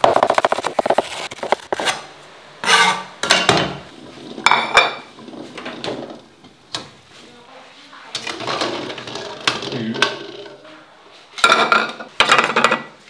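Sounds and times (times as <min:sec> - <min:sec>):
kitchenware clattering: 0:02.6 - 0:06.2, 0:08.1 - 0:10.7, 0:11.4 - 0:13.0.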